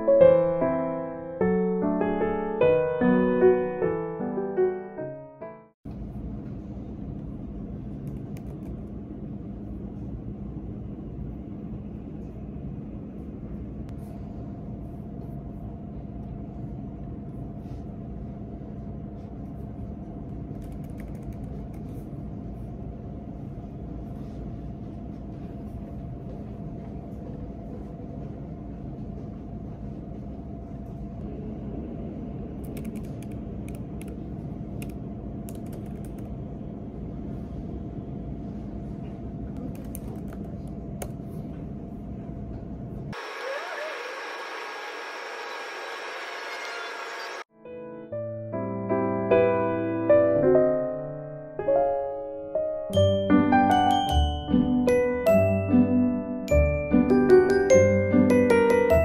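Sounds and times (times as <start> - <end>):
low rumble with hum: 5.9 - 43.2
laptop keyboard clicking: 8.0 - 8.8, 20.5 - 21.9, 32.6 - 34.2, 34.8 - 36.3, 39.7 - 41.2.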